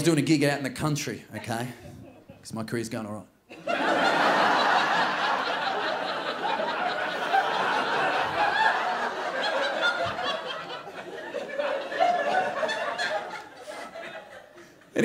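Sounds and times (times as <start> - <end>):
audience laughing: 3.5 - 15.0.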